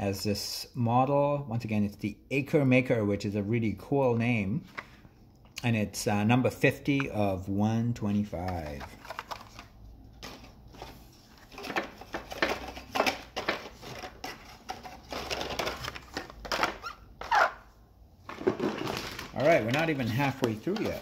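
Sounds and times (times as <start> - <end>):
plastic packaging crinkling: 8.5 - 17.6, 18.3 - 21.0.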